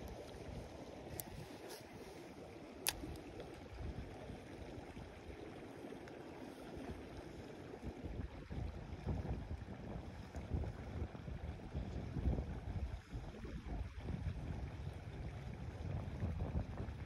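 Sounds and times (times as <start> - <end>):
wind buffeting microphone: 8.0 - 17.0.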